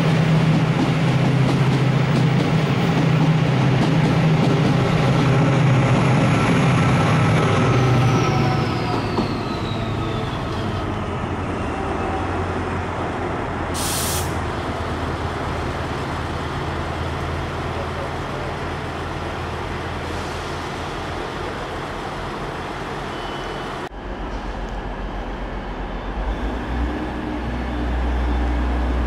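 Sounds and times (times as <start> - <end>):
diesel train engine drone: 0.0 - 29.0
wheel and rail rumble: 0.0 - 29.0
short hiss of air: 13.7 - 14.4.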